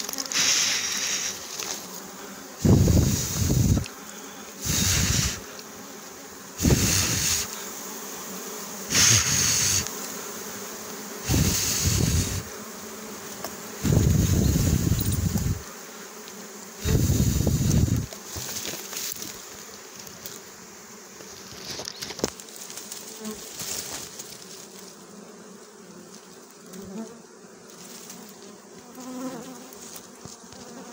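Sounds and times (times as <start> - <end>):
honey bees buzzing: 0.0 - 30.9.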